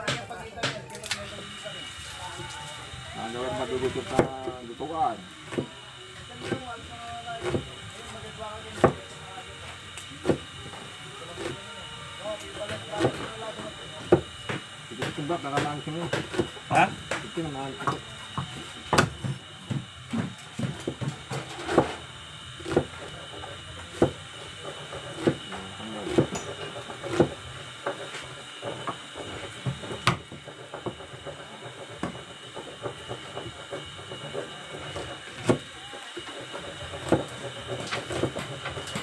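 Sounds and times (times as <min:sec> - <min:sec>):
faint voices: 0:00.0 - 0:19.6, 0:33.8 - 0:36.6
knife chopping on cutting board: 0:04.1 - 0:04.4, 0:07.4 - 0:07.6, 0:08.8 - 0:09.0, 0:12.7 - 0:13.3, 0:14.0 - 0:22.0, 0:22.6 - 0:23.0, 0:23.9 - 0:28.0, 0:36.6 - 0:38.4.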